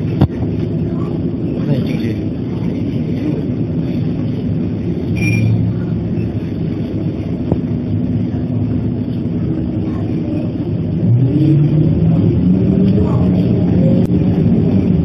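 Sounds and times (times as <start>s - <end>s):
bus diesel engine running: 0.0s - 15.0s
high beep: 5.1s - 5.6s.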